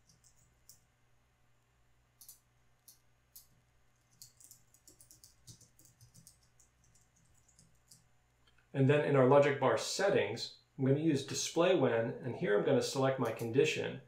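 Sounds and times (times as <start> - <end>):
typing on computer keyboard: 0.0 - 0.8, 2.2 - 8.1.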